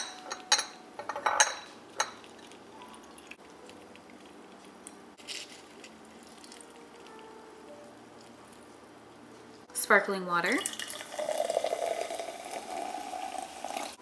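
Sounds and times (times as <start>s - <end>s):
metal clinking on glass: 0.0s - 2.2s.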